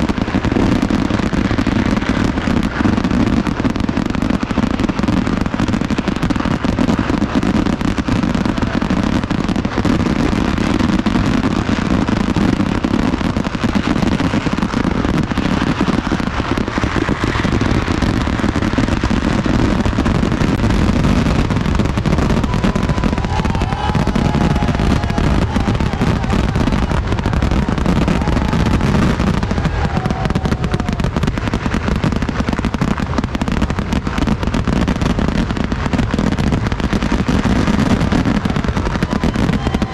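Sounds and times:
fireworks bangs and crackling: 0.0 - 39.9
heavy low rumble: 12.7 - 37.2.

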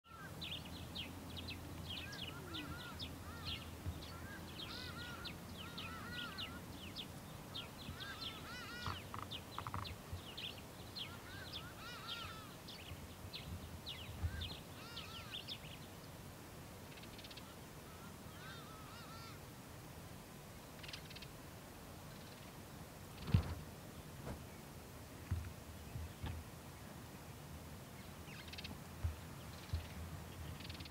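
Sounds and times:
birds chirping and whistling: 7.6 - 12.9.

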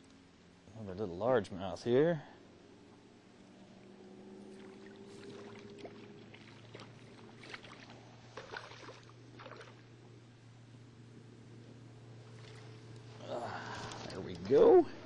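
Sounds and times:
low steady hum: 0.0 - 15.0
small water splashes: 4.5 - 9.9, 12.3 - 12.9.

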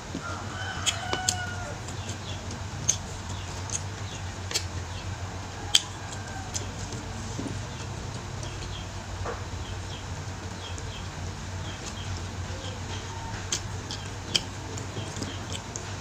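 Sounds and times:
steady low hum: 0.0 - 16.0
faint rooster crowing: 0.1 - 3.0, 5.2 - 7.6, 12.4 - 14.4.

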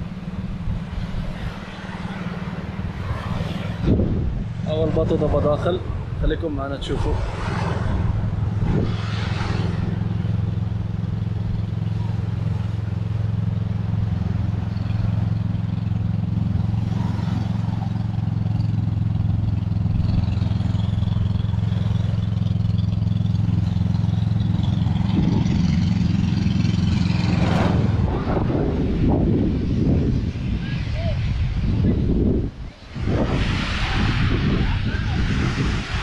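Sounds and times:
boat engine droning: 7.6 - 31.5.

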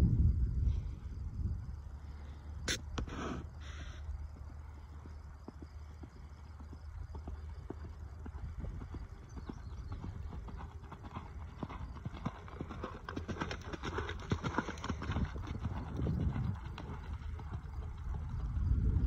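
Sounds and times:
horse hoofbeats on sand: 4.3 - 18.7.

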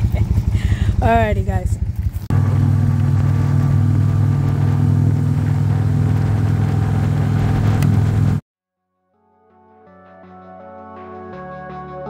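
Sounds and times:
motorcycle engine hum: 0.0 - 8.4.

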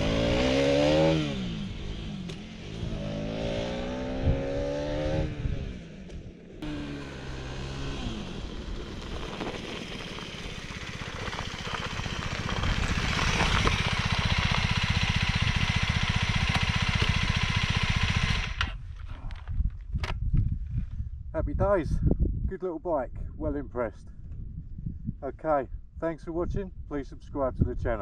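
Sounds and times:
motorcycle engine running: 0.0 - 19.0.

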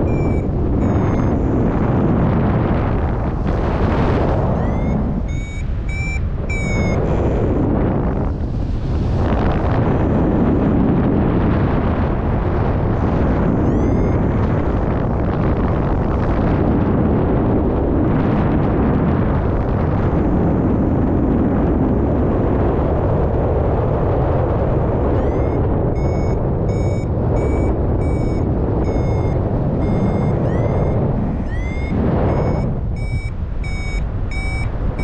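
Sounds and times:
rising variometer beeps: 0.0 - 8.3, 12.8 - 16.3, 24.7 - 35.0
wind rushing over microphone: 0.0 - 35.0.

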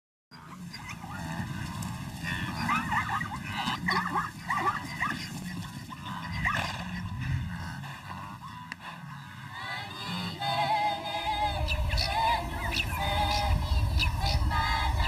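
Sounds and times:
animal yips and whines: 2.3 - 5.4
low rumble: 5.4 - 8.2, 10.0 - 15.0.

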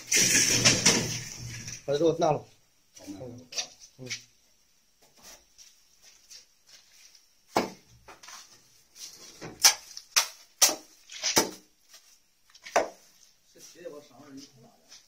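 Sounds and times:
shovel scraping concrete floor: 0.0 - 1.8.

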